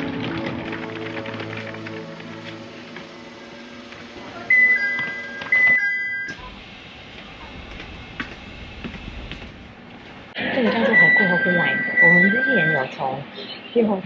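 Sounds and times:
faint music: 0.0s - 7.7s
steady background hum: 0.0s - 14.0s.

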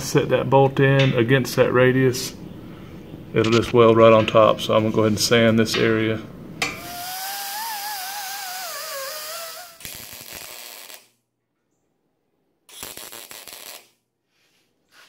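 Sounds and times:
welder crackling: 6.6s - 11.2s, 12.7s - 14.0s.

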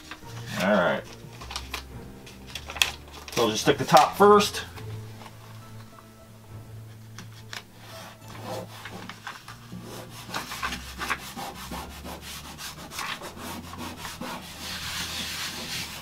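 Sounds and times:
hands rubbing plate on wall: 7.8s - 16.0s.

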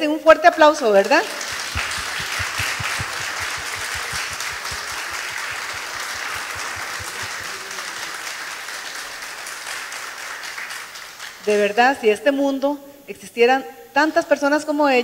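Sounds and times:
audience applauding: 1.0s - 11.6s
close claps: 1.0s - 11.6s.

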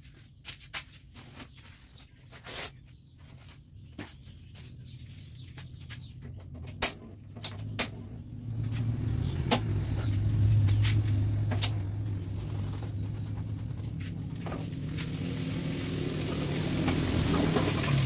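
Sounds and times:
burner flame rumble: 8.0s - 18.0s.

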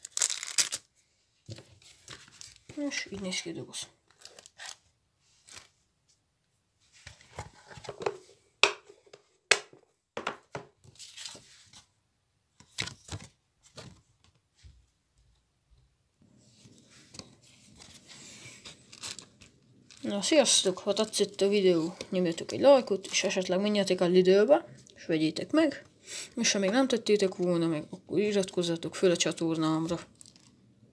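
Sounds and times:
packaging rustling: 0.0s - 0.9s, 1.5s - 3.0s, 4.1s - 5.8s, 17.7s - 21.4s
plastic box clicks and knocks: 7.8s - 10.7s.

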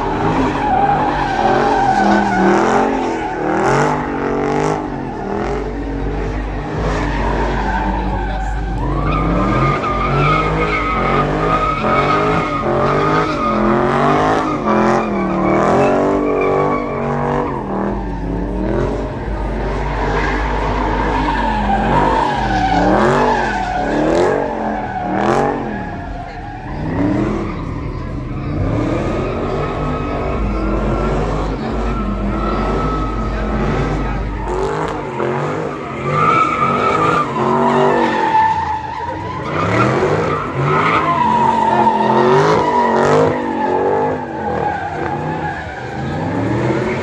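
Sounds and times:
tyres squealing: 0.0s - 6.0s, 6.6s - 47.0s
car engine revving: 0.0s - 47.0s.

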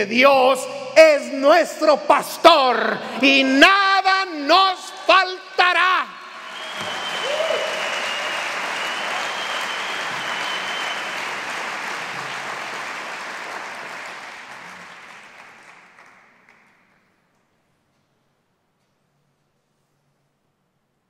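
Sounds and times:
high steady whistle: 6.2s - 11.6s
audience applauding: 6.3s - 17.1s.

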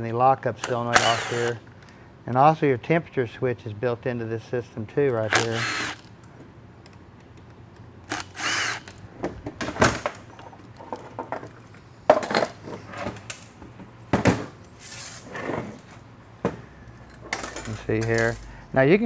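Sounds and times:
cordless ratchet whirring: 0.6s - 1.6s, 5.2s - 6.1s, 8.0s - 9.0s.

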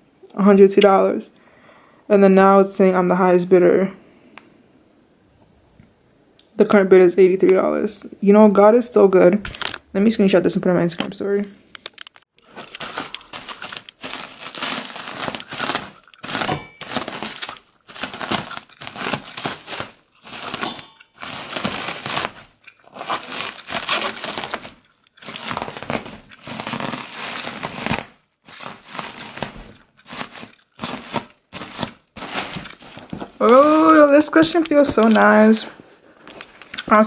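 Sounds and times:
packaging crinkling and ripping: 11.8s - 37.0s.

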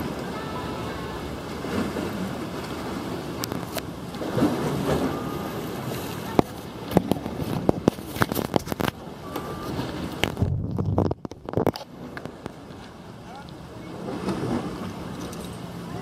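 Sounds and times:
sea waves washing: 0.0s - 16.0s
wind on microphone: 9.6s - 12.6s.

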